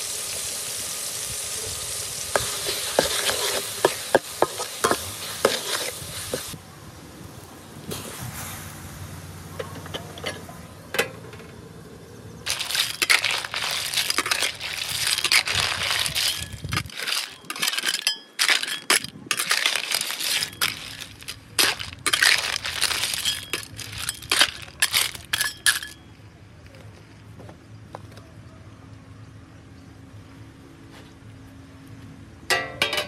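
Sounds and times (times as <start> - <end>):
snail shells rattling in wok: 2.4 - 6.6, 12.4 - 26.0.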